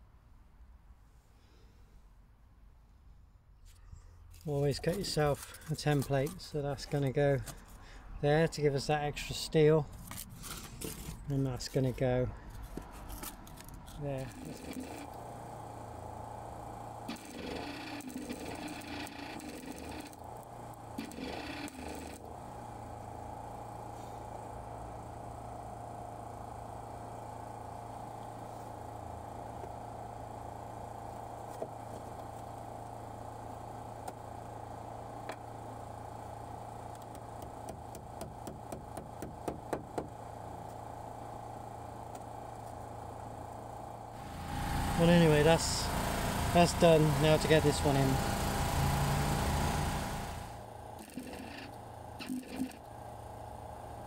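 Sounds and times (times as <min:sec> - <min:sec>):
steady hum: 0:04.5 - 0:54.0
welding arc crackling: 0:13.4 - 0:22.3, 0:44.1 - 0:52.9.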